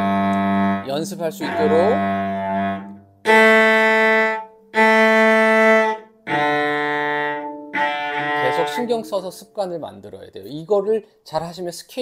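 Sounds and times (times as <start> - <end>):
cello bowed notes: 0.0 - 9.4.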